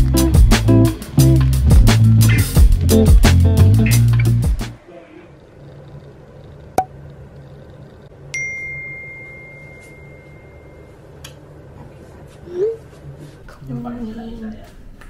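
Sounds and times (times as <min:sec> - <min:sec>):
guitar music: 0:00.0 - 0:04.8.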